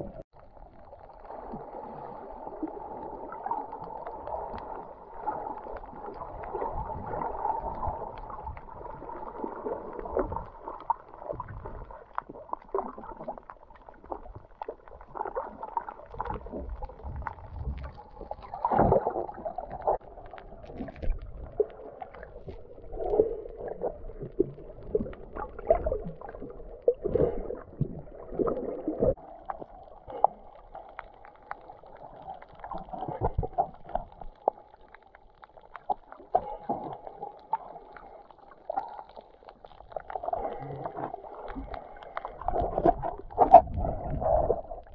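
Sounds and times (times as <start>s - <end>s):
muffled underwater water rush: 0.0s - 44.9s
underwater clicks and crackles: 0.0s - 44.9s.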